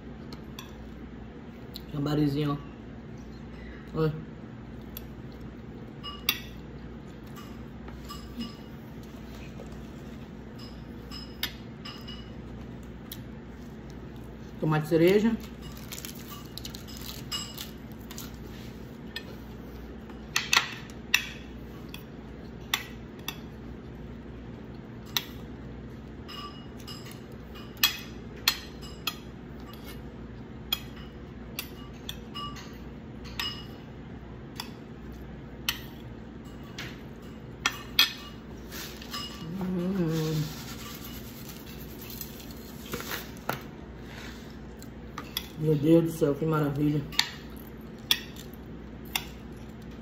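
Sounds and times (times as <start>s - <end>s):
steady low hum: 0.0s - 50.0s
metal spoon clinking on plate: 10.6s - 12.4s.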